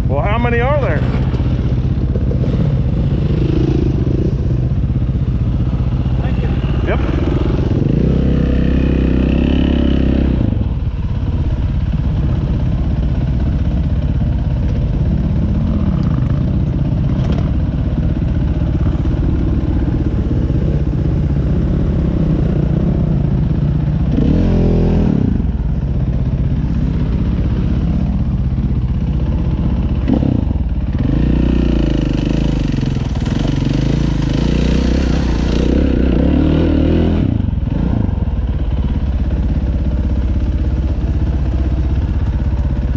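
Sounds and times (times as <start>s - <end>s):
dirt bike engine revving: 0.0s - 4.9s, 5.8s - 12.6s, 29.3s - 39.0s.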